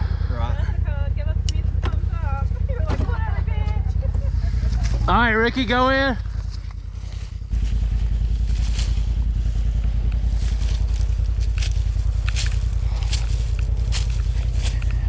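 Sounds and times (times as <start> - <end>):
engine idling: 0.0 - 15.0
footsteps through dry leaves: 6.3 - 15.0.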